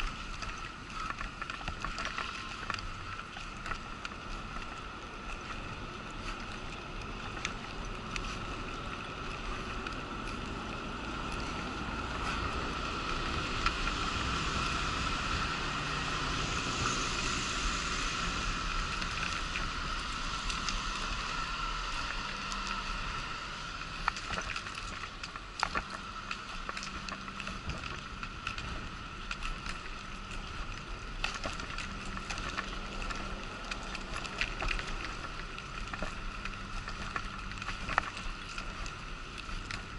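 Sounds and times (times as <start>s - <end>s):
wheelchair rolling on pavement: 0.0s - 39.9s
road traffic passing: 10.8s - 24.0s.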